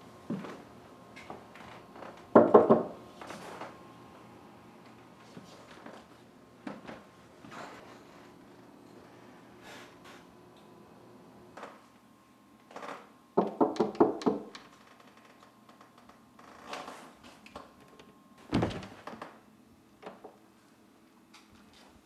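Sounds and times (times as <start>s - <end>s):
knocks on wooden door: 2.3s - 2.9s, 13.4s - 14.5s
heavy thump: 18.5s - 19.0s.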